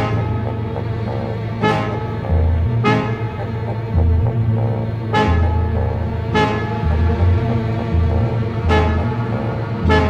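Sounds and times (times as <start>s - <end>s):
background music with deep bass: 0.0s - 10.0s.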